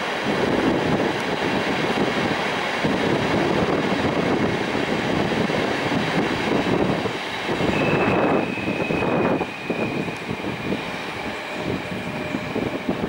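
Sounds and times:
train wheels rumbling on track: 0.0s - 13.0s
high steady squeal: 7.2s - 13.0s.

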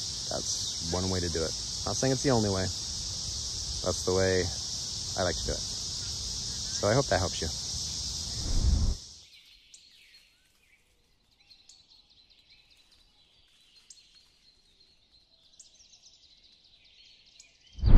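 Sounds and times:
insect drone: 0.0s - 9.3s
high insect hum: 0.0s - 9.4s.

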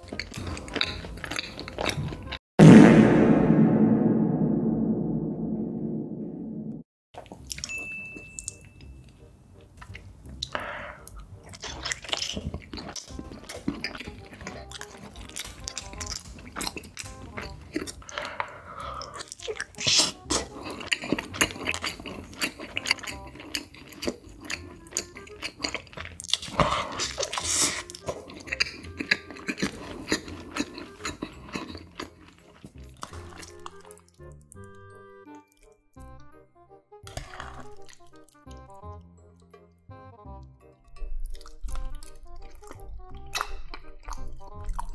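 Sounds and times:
chewing cheese: 0.0s - 2.4s, 8.4s - 36.3s, 37.0s - 39.6s, 40.3s - 44.9s
wet mouth clicks and smacking: 41.2s - 44.9s.

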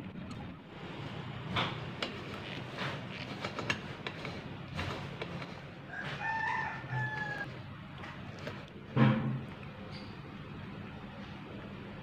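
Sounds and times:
rooster crowing: 5.9s - 7.5s.

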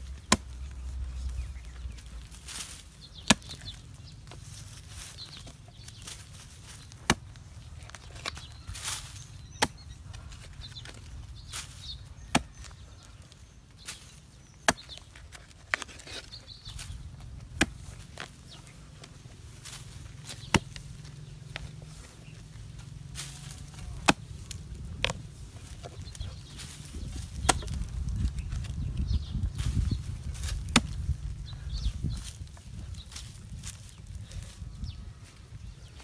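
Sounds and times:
digging tool striking stony earth: 0.0s - 0.8s, 1.7s - 13.1s, 13.8s - 18.6s, 19.6s - 21.8s, 23.1s - 28.8s, 29.6s - 31.3s
soil scraping: 0.0s - 34.7s.

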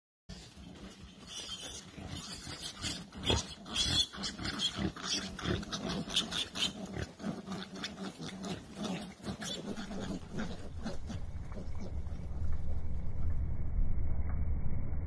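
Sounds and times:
animals squealing and growling: 0.3s - 12.7s
low pitched drone: 9.7s - 15.0s.

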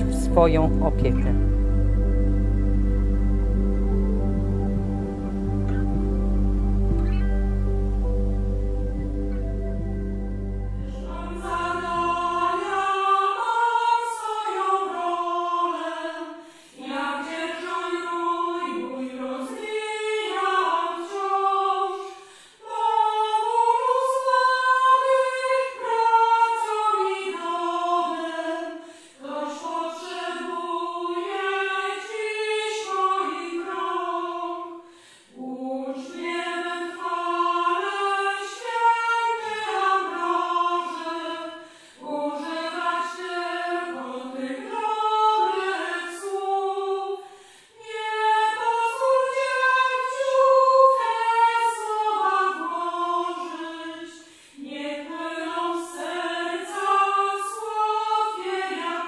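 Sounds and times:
low sustained musical tone: 0.0s - 12.8s
choir singing unaccompanied: 0.0s - 59.0s.

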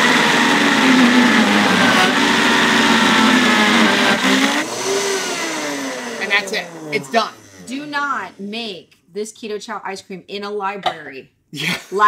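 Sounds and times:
blender crushing ice: 0.0s - 8.3s
blender motor spinning down: 0.0s - 8.5s.

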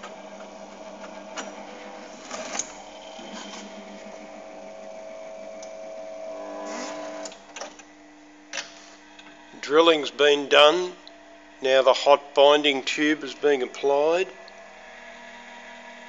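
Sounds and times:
paper drill motor humming: 0.0s - 7.5s.

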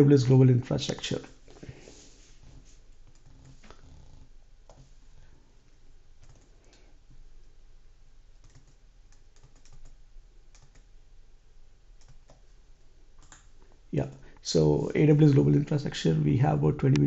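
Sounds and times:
keyboard keys clicking: 6.2s - 6.5s, 8.4s - 10.9s.

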